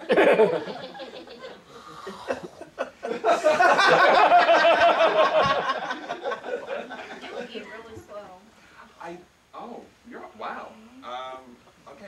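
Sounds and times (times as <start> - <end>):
people laughing: 0.0 - 7.7.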